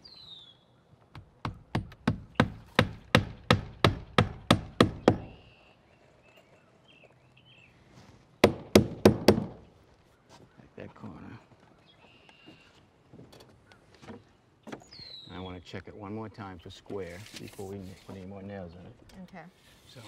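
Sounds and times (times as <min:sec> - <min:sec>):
hammer driving nails: 0:01.1 - 0:05.4, 0:08.4 - 0:09.6.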